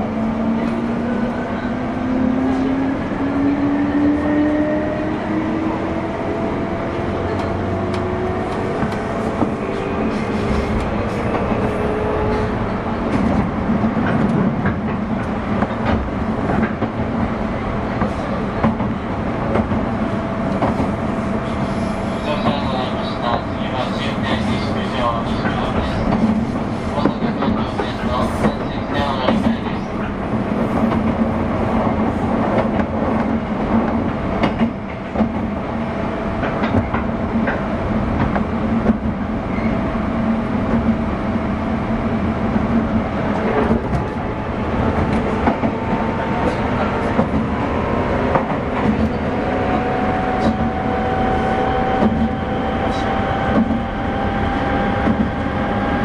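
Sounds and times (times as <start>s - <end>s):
train wheels rumbling on rails: 0.0s - 56.0s
track knocks: 6.9s - 21.0s, 36.4s - 39.7s, 42.6s - 56.0s.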